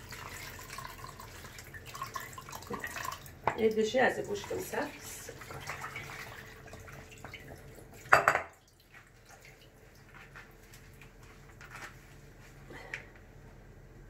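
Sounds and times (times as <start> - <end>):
liquid trickling and dripping: 0.0 - 11.3
cookware clattering: 8.1 - 8.5.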